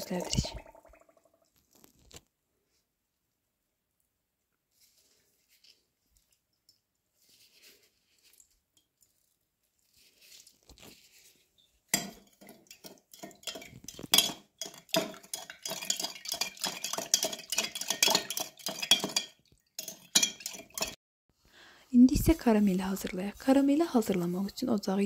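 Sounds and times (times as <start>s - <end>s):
spoon clinking in glass jug: 11.9s - 21.0s.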